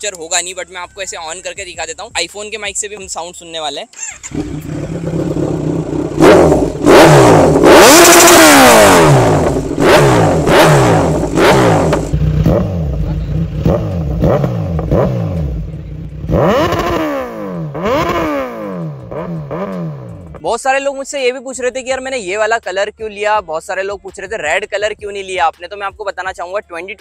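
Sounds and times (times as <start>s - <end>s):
motorcycle engine revving: 4.0s - 20.5s.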